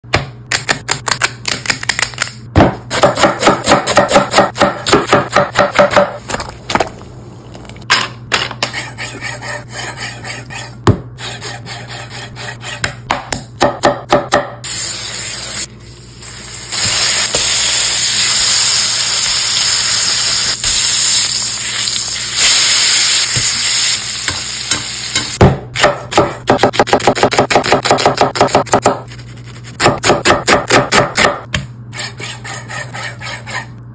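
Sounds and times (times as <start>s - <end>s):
knife chopping on wooden board: 2.6s - 6.2s, 12.8s - 14.6s, 25.4s - 29.1s, 29.8s - 32.6s
food sizzling in a pan: 14.7s - 25.4s.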